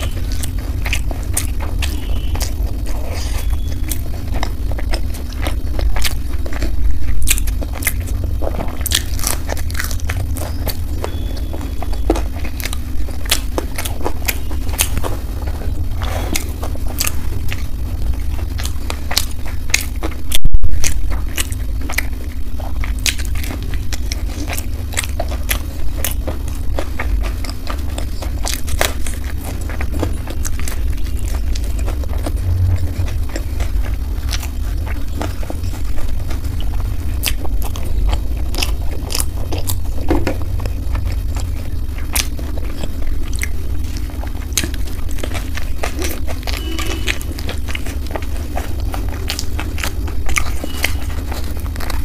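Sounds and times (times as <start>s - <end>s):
low hum: 0.0s - 52.0s
person chewing crunchy food: 0.0s - 52.0s.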